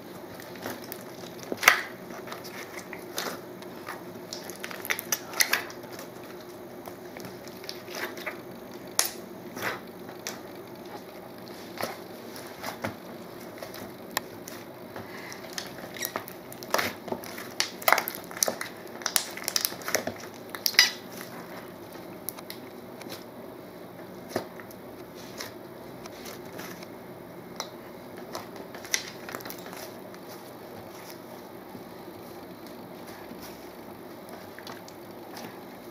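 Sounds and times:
slime squished with sticky pops: 0.3 - 21.4, 27.6 - 30.3.

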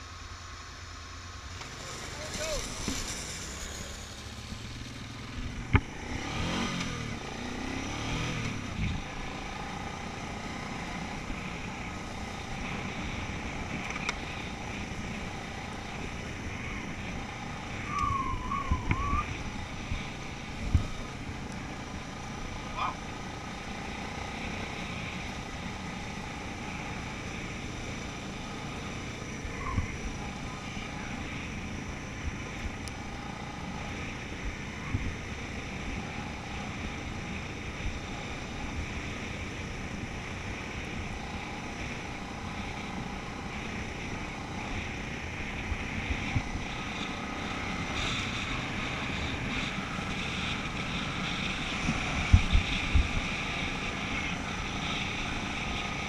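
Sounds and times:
atv engine running: 0.0 - 56.0
tyres on gravel: 1.4 - 7.5.

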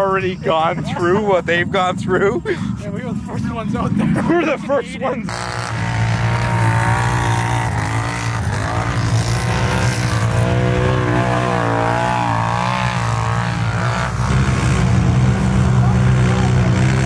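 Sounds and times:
atv engines revving in mud: 5.2 - 17.0.

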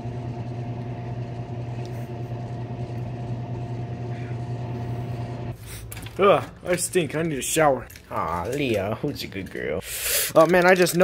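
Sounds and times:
microwave oven humming: 0.0 - 5.6.

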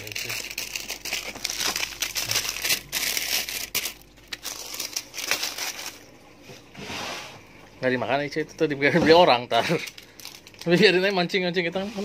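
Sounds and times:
plastic wrappers crinkling: 0.0 - 6.2, 9.3 - 11.4.

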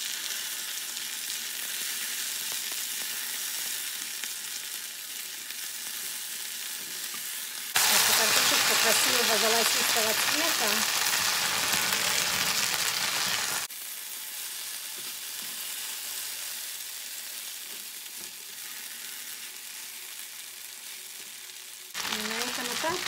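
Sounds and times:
potatoes sizzling in hot oil: 0.0 - 23.0
spatula stirring in frying pan: 17.4 - 20.1.

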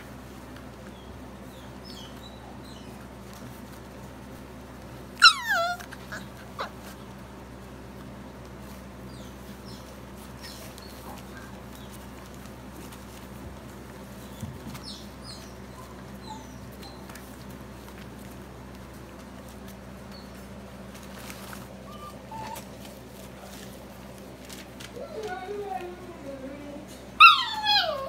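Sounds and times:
steady low hum: 0.0 - 28.0
puppy whimpering: 5.2 - 7.0, 14.2 - 17.6, 21.8 - 23.0, 26.5 - 28.0
puppy yelping: 5.2 - 7.0, 14.7 - 17.5, 21.8 - 23.0, 27.2 - 28.0.

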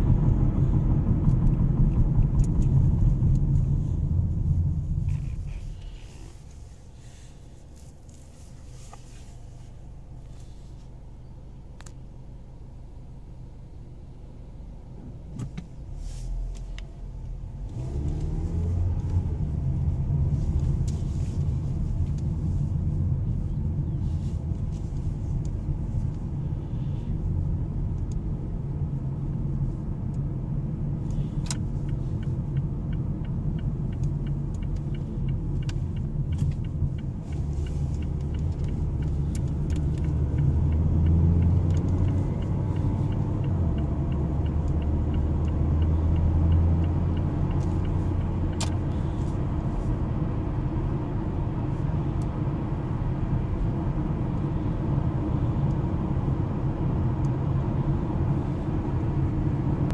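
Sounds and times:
car engine accelerating: 0.0 - 11.2, 11.8 - 59.9
road rumble: 0.0 - 59.9
light regular ticking: 30.0 - 50.2.

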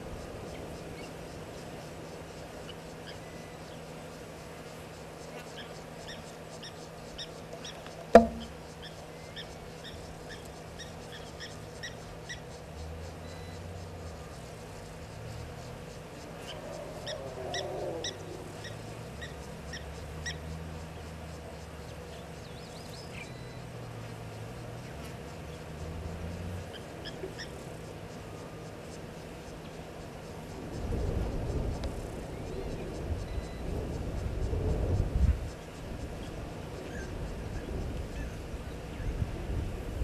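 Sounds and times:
steady low hum: 0.0 - 40.0
sharp loud click: 8.2 - 8.5.

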